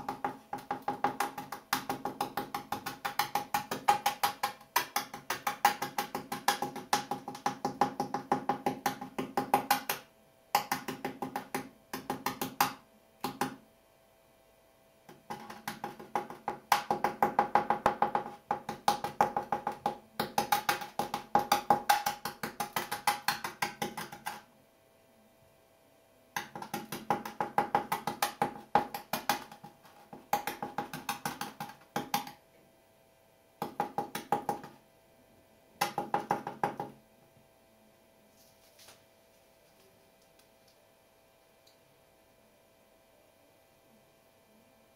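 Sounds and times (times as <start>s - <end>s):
rapid hollow wooden clicking: 0.0s - 10.0s, 15.1s - 24.4s.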